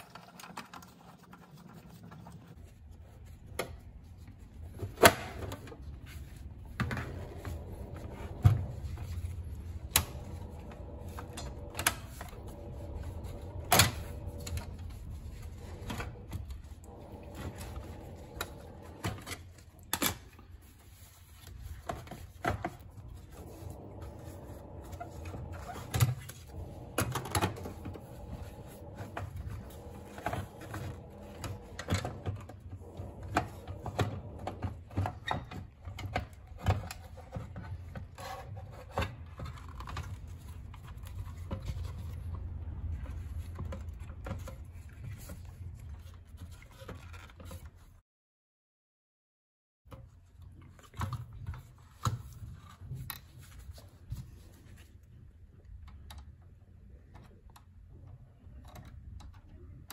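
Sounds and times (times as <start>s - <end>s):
low steady hum: 2.5s - 47.8s.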